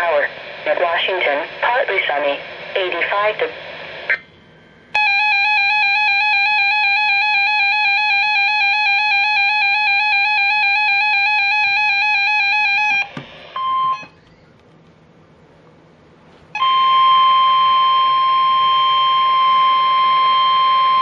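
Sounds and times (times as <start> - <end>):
steady single alarm tone: 4.2 - 14.3, 16.6 - 21.0.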